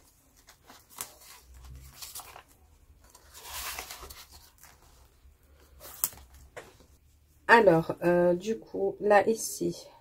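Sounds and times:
paper and plastic rustling: 0:00.0 - 0:07.0.

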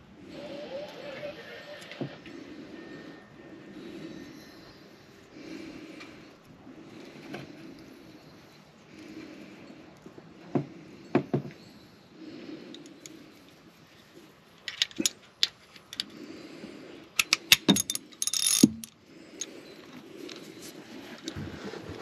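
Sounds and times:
metal hand tools clinking: 0:17.2 - 0:19.5.

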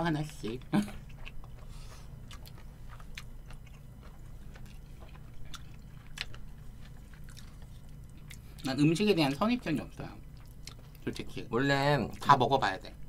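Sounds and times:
low steady hum: 0:00.0 - 0:13.0
quiet chewing: 0:00.2 - 0:08.8, 0:09.9 - 0:11.3.

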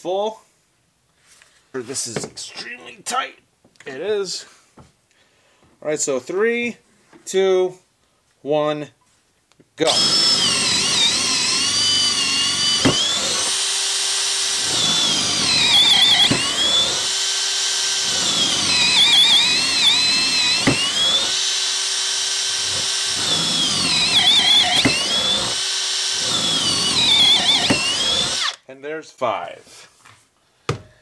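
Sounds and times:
drill boring into wood: 0:09.8 - 0:28.6.

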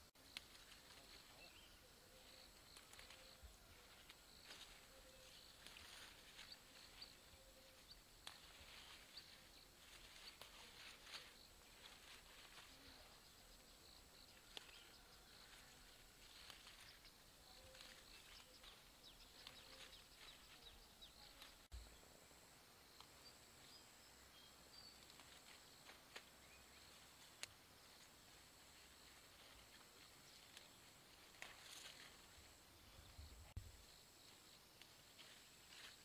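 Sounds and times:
small scattered clicks and ticks: 0:00.3 - 0:01.4, 0:02.4 - 0:04.8, 0:07.9 - 0:13.6, 0:14.2 - 0:21.7, 0:27.2 - 0:27.6.

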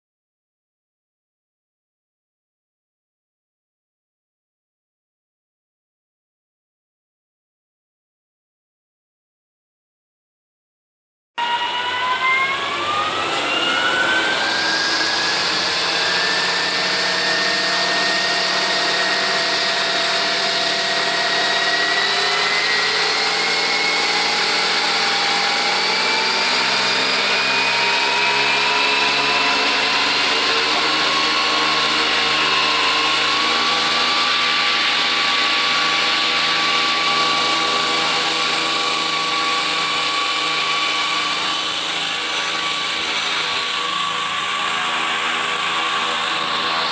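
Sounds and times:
model helicopter motor whine: 0:11.4 - 0:46.9.

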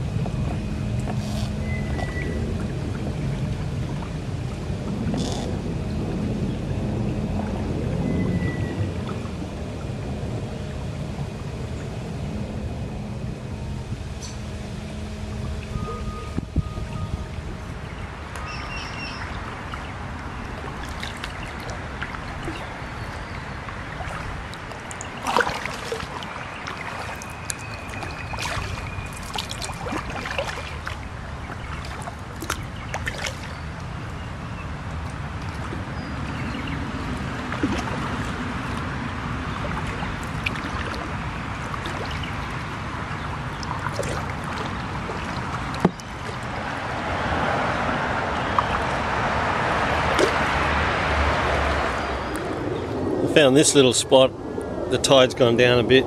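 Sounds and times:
water sloshing around kayak: 0:00.0 - 0:12.8, 0:14.0 - 0:52.7
thin whistle: 0:01.3 - 0:02.4, 0:08.0 - 0:08.8, 0:15.6 - 0:17.3
paddle splashes and knocks: 0:18.3 - 0:34.2, 0:34.9 - 0:51.8.

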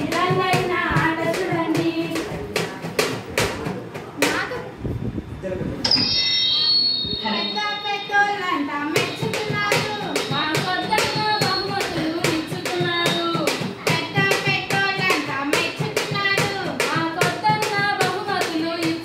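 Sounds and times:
girls singing into a microphone: 0:00.0 - 0:02.5.

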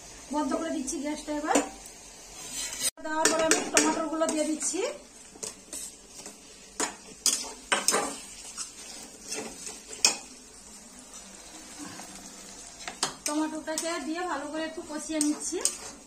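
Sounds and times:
faint sizzle: 0:00.0 - 0:16.0
spoon scraping a frying pan: 0:01.6 - 0:04.8, 0:05.4 - 0:10.4, 0:15.0 - 0:16.0.

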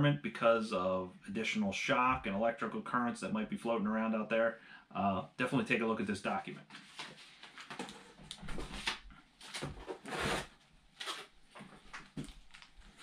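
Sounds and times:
cardboard box rustling and scraping: 0:08.6 - 0:11.2.

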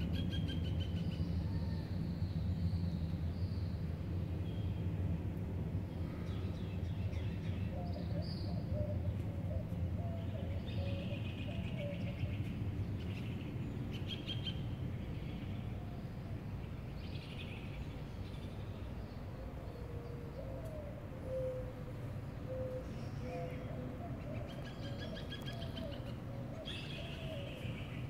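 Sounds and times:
low background rumble: 0:00.0 - 0:28.0
birds chirping: 0:05.8 - 0:28.0
lower wavering bird call: 0:19.5 - 0:27.8.

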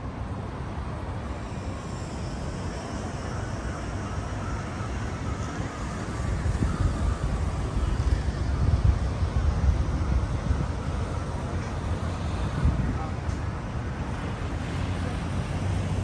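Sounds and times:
cars passing: 0:00.0 - 0:16.0
wind buffeting microphone: 0:05.6 - 0:14.7.

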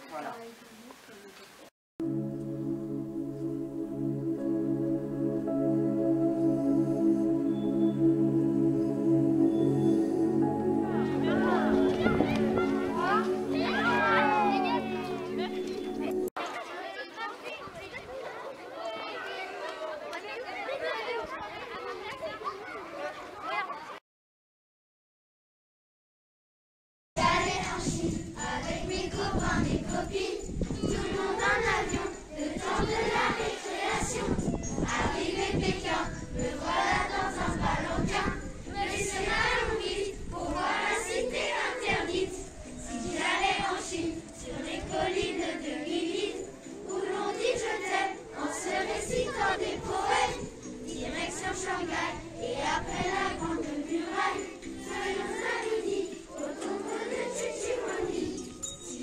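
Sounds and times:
children singing: 0:02.9 - 0:16.3, 0:27.2 - 0:59.0
small metal chimes tinkling: 0:54.5 - 0:59.0.

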